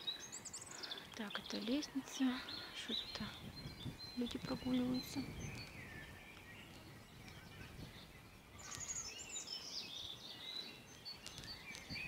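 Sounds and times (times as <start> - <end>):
faint outdoor background noise: 0.0 - 12.0
songbird warbling: 0.0 - 12.0.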